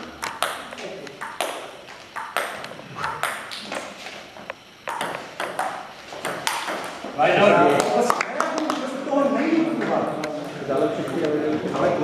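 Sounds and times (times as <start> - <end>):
table tennis ball hitting table and bats: 0.0 - 4.2, 4.8 - 7.2.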